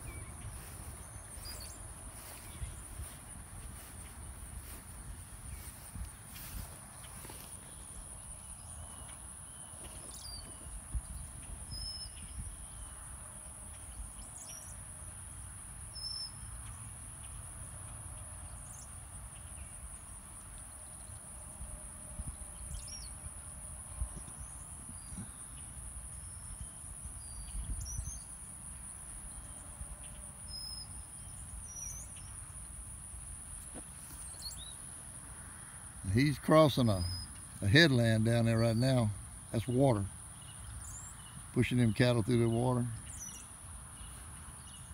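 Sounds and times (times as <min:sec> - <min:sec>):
wind rumble on microphone: 0:00.0 - 0:07.0, 0:09.8 - 0:13.1, 0:21.5 - 0:28.3.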